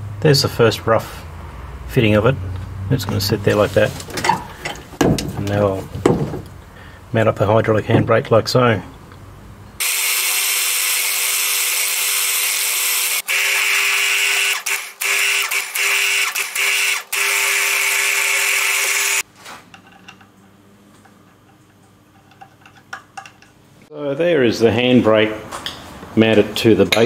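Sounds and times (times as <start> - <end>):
milling machine cutting metal: 9.8 - 19.2.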